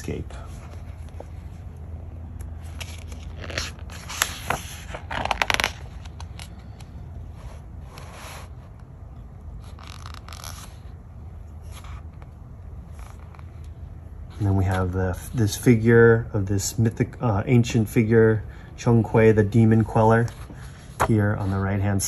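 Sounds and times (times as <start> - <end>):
low steady hum: 0.0 - 22.0
paper rustling and sliding: 2.6 - 8.9, 20.0 - 22.0.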